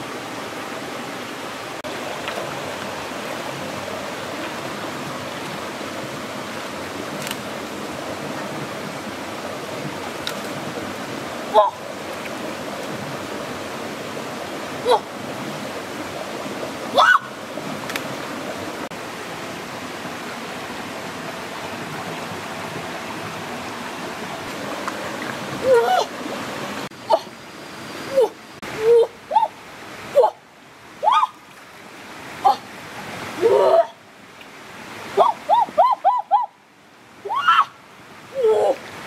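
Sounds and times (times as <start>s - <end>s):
stream flowing over rocks: 0.0s - 39.0s
watery splashes: 1.7s - 19.4s.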